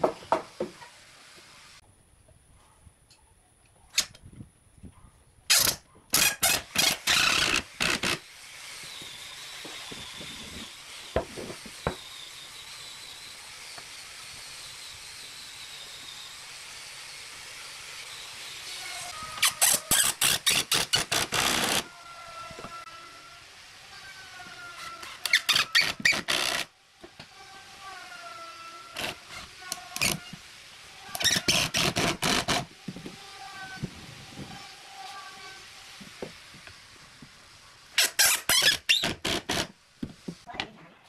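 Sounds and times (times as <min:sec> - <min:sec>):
steady background hiss: 0:00.0 - 0:41.0
impact driver hammering screws: 0:05.5 - 0:08.2.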